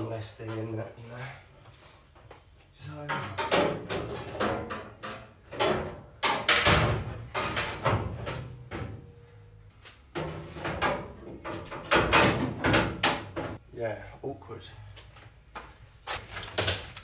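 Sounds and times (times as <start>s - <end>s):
sheet metal clanking and scraping: 3.0s - 9.3s, 10.1s - 13.6s.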